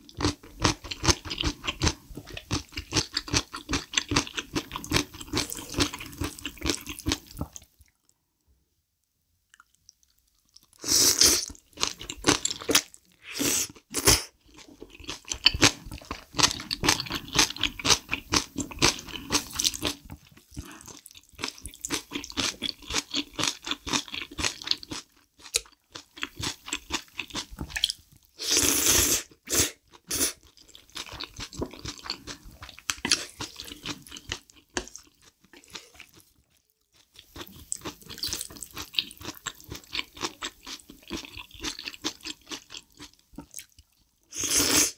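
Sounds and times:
crunching of kimchi: 0.0 - 8.1, 9.5 - 28.4, 29.8 - 44.2
wet chewing: 30.5 - 44.0.

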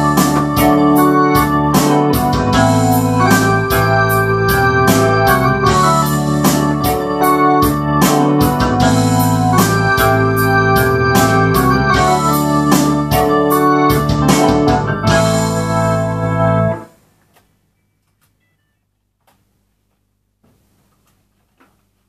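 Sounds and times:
synthesizer playing chords: 0.0 - 17.0.

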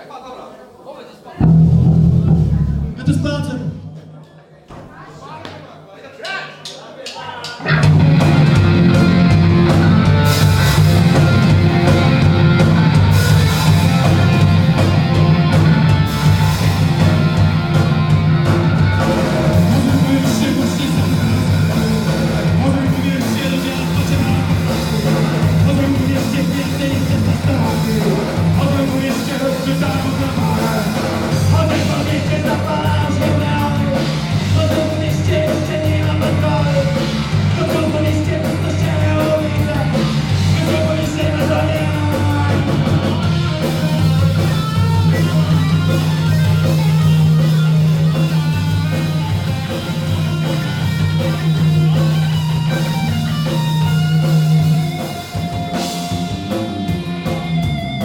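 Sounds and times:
drum kit: 1.4 - 4.3, 7.1 - 58.0
electric guitar: 7.6 - 58.0
man singing into microphone: 19.5 - 43.4.

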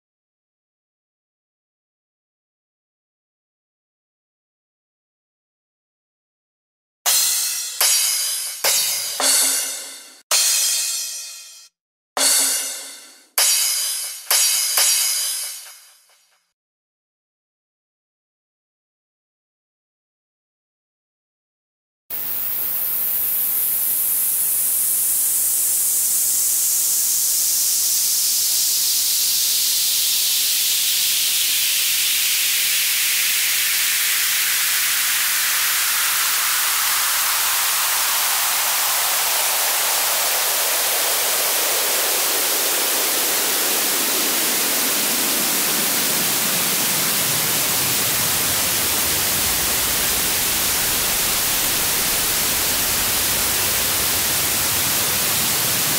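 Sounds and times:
synthesized white-noise sweep: 22.1 - 55.9.

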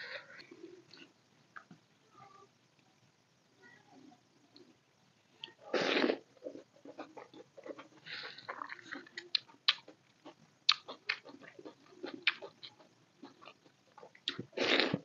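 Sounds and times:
close chewing: 6.4 - 14.4.

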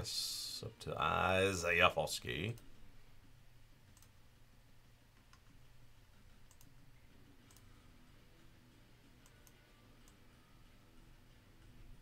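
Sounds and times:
low room hum: 0.0 - 12.0
computer mouse clicks: 3.9 - 4.2, 5.2 - 5.6, 6.4 - 6.8, 7.4 - 7.7.

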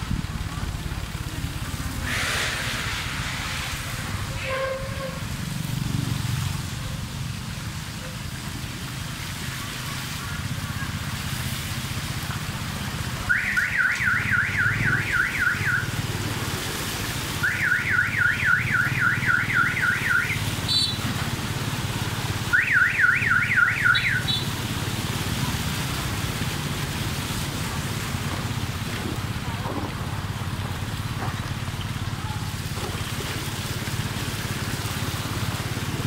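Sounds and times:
steady low rumble: 0.0 - 4.4
electronic alarm siren whooping: 13.3 - 15.9, 17.4 - 21.0, 22.5 - 24.4.

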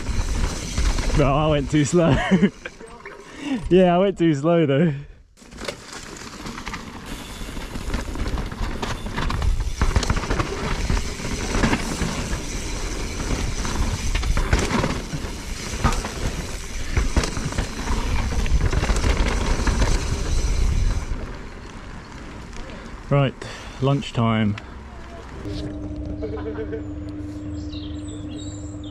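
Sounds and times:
bike rattling and knocking: 0.0 - 3.6, 5.4 - 22.8
tyres rolling on dirt: 0.0 - 4.1, 5.4 - 25.5.

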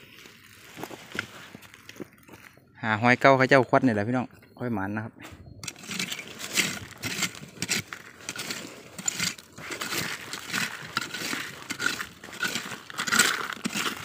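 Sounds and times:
dead leaves rustling and scraping: 0.0 - 2.6, 5.6 - 14.0.

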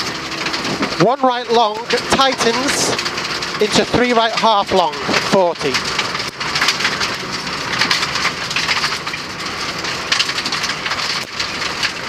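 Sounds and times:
gravel pelting car underside: 0.0 - 12.0
tyres crackling on stones: 0.0 - 12.0.

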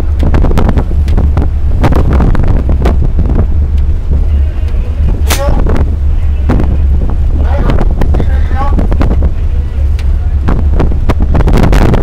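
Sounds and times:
wind buffeting microphone: 0.0 - 12.0
crackling pops: 5.2 - 5.6.

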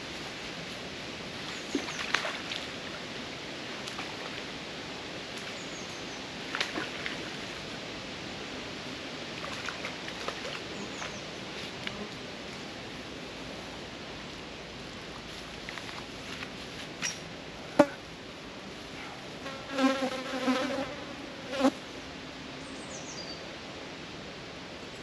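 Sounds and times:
steady rush of water: 0.0 - 16.6.

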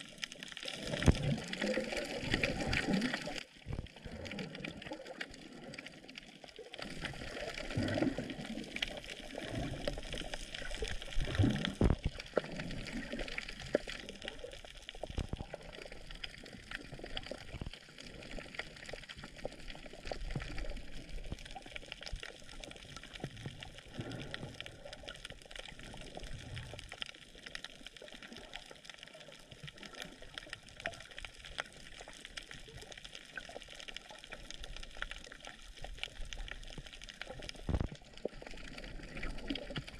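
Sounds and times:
small crackling clicks: 0.0 - 39.9
water sloshing and gurgling: 0.0 - 39.9.

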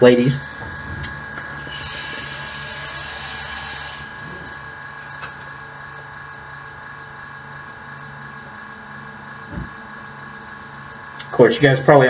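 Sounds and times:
steady low hum: 0.0 - 12.0
hookah bubbling: 0.4 - 5.4.

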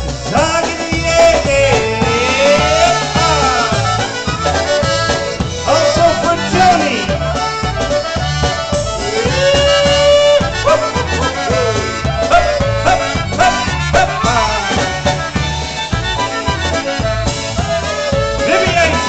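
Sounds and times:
polka band playing: 0.0 - 19.0
steady bass beat: 0.0 - 19.0
trumpet: 0.3 - 7.2, 8.4 - 19.0.

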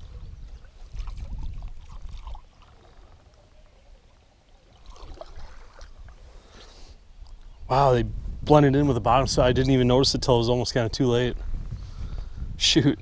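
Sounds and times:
water splashing and gurgling: 0.0 - 3.3, 4.0 - 6.5.

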